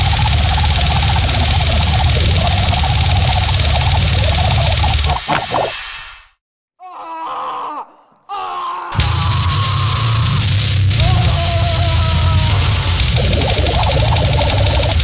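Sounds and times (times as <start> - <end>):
distorted noise music with heavy bass: 0.0 - 5.8, 9.0 - 15.0
wavering pitched snippets: 0.0 - 5.9, 13.0 - 15.0.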